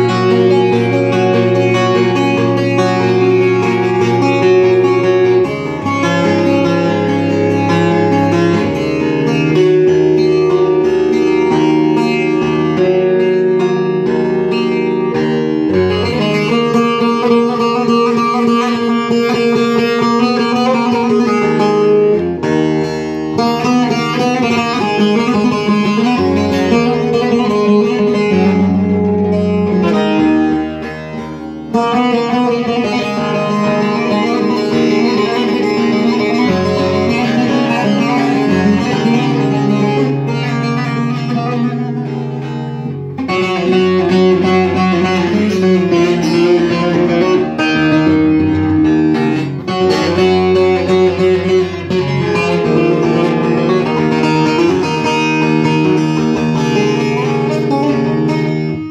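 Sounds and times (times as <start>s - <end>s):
plucked string instrument: 0.0s - 58.9s.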